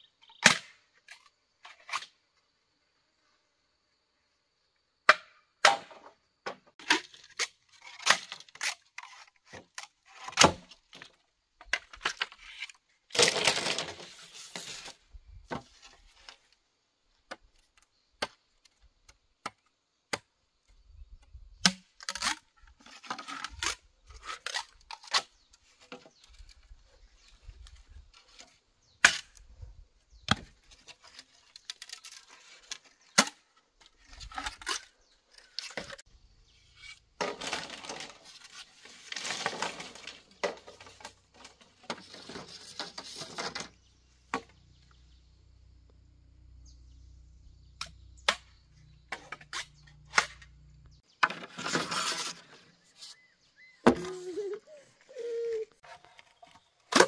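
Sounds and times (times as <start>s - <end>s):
tearing rustling bamboo: 6.8s - 11.2s, 21.6s - 29.4s, 30.3s - 36.1s, 36.8s - 43.8s, 51.2s - 53.3s.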